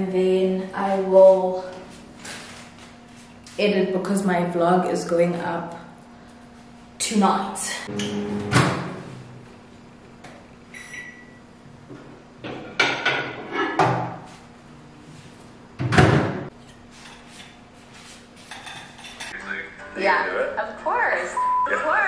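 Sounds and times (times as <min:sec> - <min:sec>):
short beep: 0:10.8 - 0:11.4, 0:21.4 - 0:21.8.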